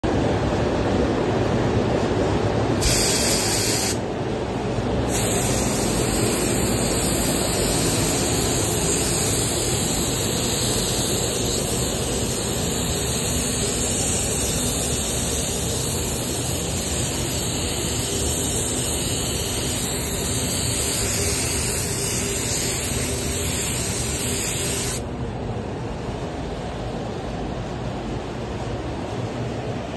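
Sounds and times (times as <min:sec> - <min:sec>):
paint spray gun hissing: 0:02.8 - 0:04.0, 0:05.1 - 0:25.0.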